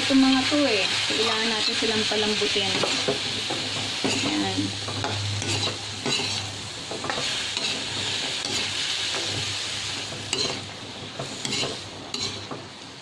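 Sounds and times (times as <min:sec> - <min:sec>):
vegetables sizzling in oil: 0:00.0 - 0:13.0
metal spatula scraping pan: 0:02.8 - 0:12.6.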